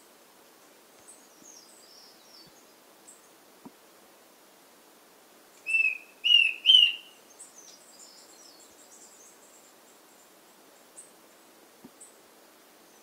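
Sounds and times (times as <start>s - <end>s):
faint high chirps: 5.6s - 10.3s
bird whistled notes: 5.7s - 7.1s.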